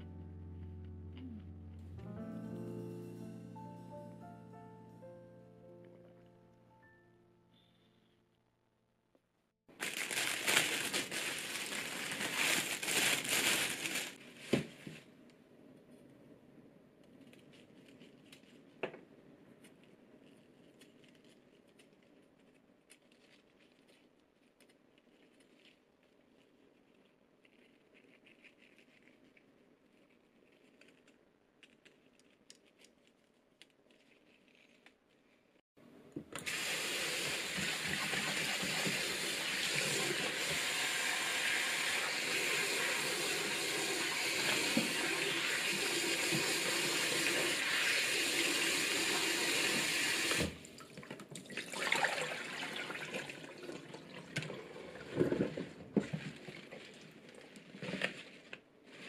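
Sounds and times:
tap water running into bowl: 36.5 - 55.0
water splashing and sloshing: 50.4 - 58.3.

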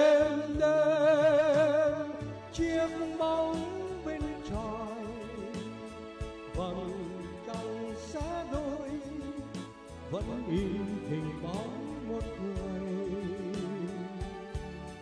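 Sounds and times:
electronic keyboard: 0.0 - 15.0
man singing a slow ballad: 0.0 - 15.0.

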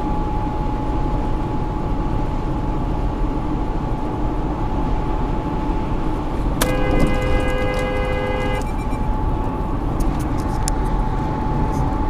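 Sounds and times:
car road and tyre noise: 0.0 - 12.0
thin steady whine: 5.8 - 10.0.

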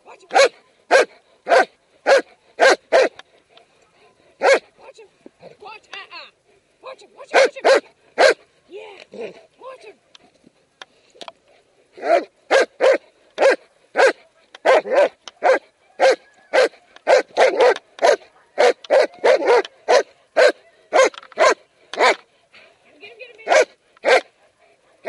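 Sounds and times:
dog barking aggressively: 0.3 - 3.2, 4.4 - 4.7, 7.3 - 8.4, 12.0 - 22.2, 23.4 - 25.0.

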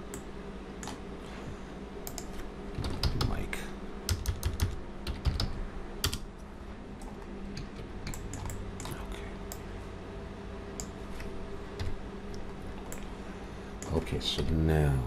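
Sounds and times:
low electrical hum: 0.0 - 15.0
keyboard and mouse clicks: 0.1 - 1.0, 2.1 - 3.4, 7.0 - 9.6.

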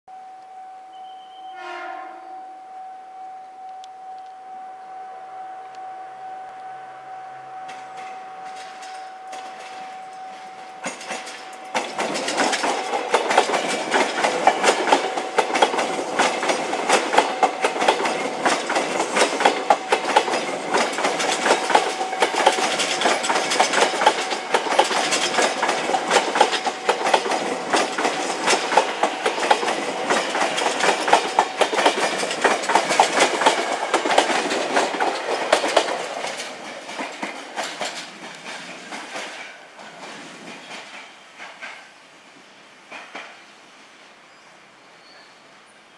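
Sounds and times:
electric train whine: 0.1 - 43.3
train wheels clattering over rails: 7.7 - 42.0, 42.8 - 43.5.

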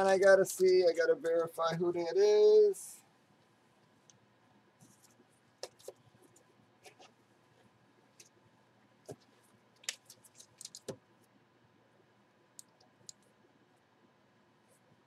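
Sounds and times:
faint clicks and taps: 4.8 - 8.4, 9.0 - 11.1, 12.5 - 13.4.

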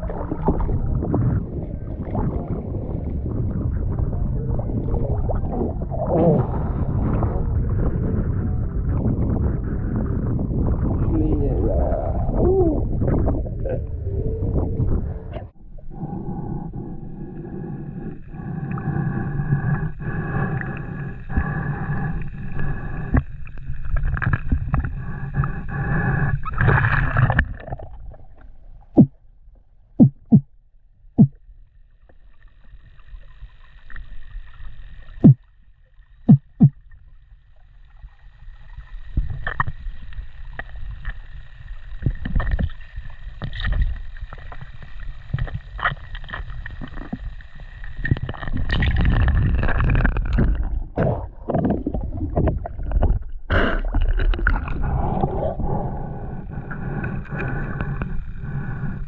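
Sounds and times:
low underwater rumble: 0.0 - 59.0
sharp underwater clicks: 30.0 - 30.5, 31.2 - 31.4, 36.2 - 36.8.

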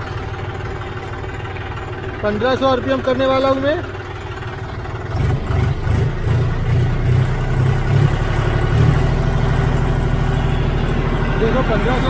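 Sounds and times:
diesel tractor engine revving up: 4.5 - 12.0.

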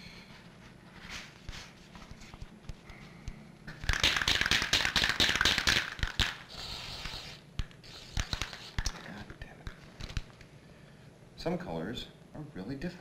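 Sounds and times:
spray can hissing: 3.9 - 9.0.

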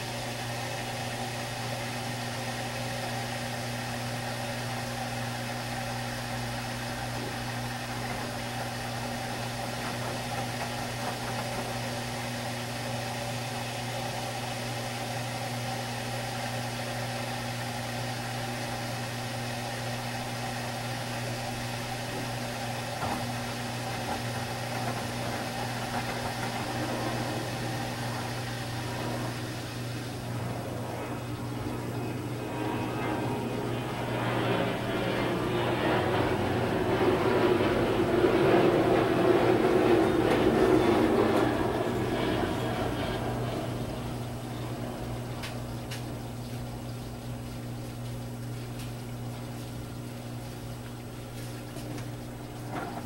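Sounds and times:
washing machine drum humming: 0.0 - 53.0
water swishing and clothes tumbling: 47.3 - 53.0.

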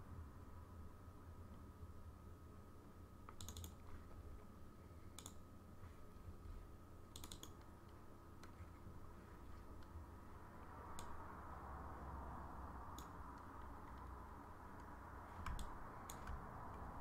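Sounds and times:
low steady hum: 0.0 - 17.0
computer mouse clicks: 3.2 - 4.1, 5.1 - 5.4, 7.1 - 8.8, 10.9 - 11.2, 12.9 - 16.9.

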